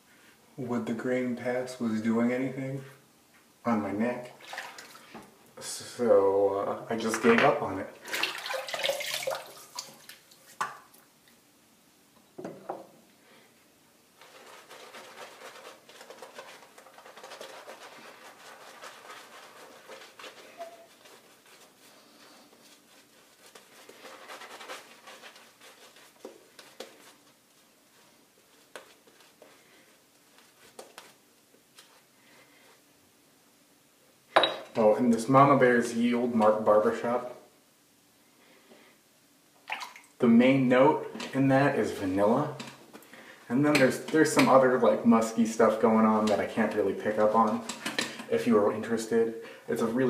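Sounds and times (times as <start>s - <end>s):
running water splash: 4.4s - 5.2s, 8.0s - 11.0s, 39.7s - 40.2s
shaving brush swishing on skin: 14.2s - 32.1s.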